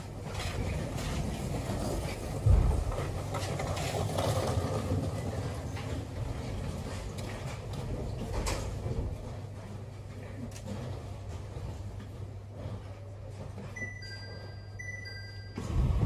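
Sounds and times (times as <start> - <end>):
train low hum: 0.0 - 16.0
low thump: 2.4 - 3.2.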